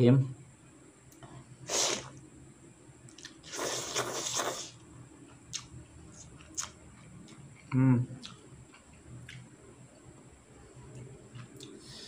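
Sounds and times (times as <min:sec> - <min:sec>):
slurping noodles: 0:01.7 - 0:02.1, 0:03.4 - 0:04.8
wet mouth clicks of chewing: 0:03.1 - 0:03.4, 0:05.5 - 0:09.5.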